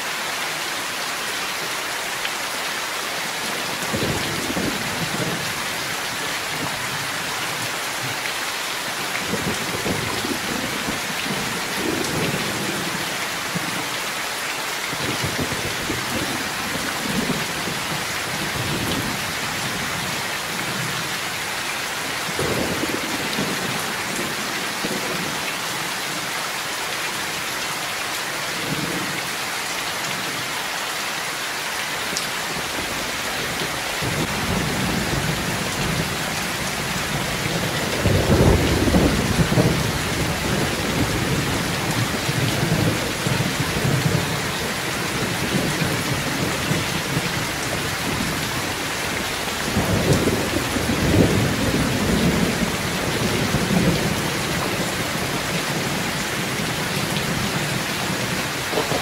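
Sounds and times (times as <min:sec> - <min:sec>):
heavy rain pouring: 0:00.0 - 0:59.0
thunder rumbling: 0:33.5 - 0:59.0.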